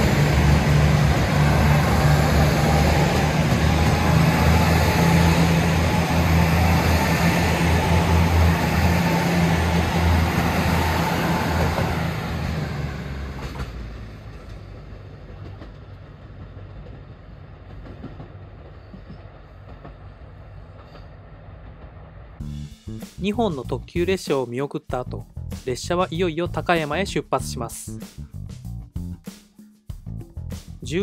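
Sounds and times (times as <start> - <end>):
train wheel and rail noise: 0.0 - 22.4
diesel train engine drone: 0.0 - 23.0.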